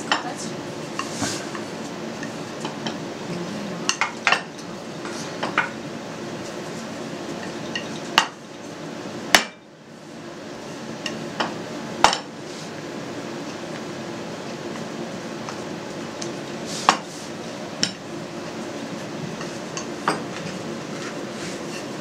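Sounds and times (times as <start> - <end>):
rolling pin rolling dough: 14.4 - 22.0.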